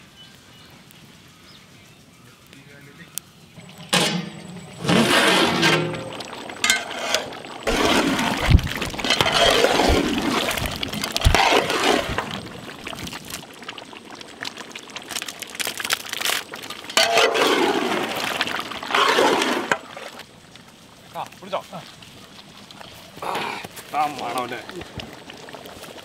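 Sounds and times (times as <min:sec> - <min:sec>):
ladle scraping gravy in pot: 0:03.6 - 0:13.0, 0:17.0 - 0:20.2.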